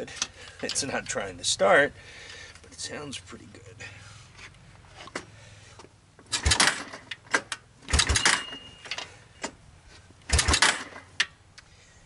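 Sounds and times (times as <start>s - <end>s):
engine pull-start cranking: 6.3s - 9.2s, 10.2s - 11.3s.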